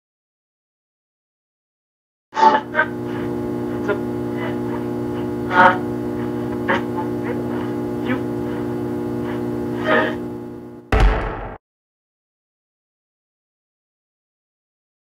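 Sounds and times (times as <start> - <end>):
low hum of held tones: 2.4 - 10.9
short sharp sounds: 10.9 - 11.6.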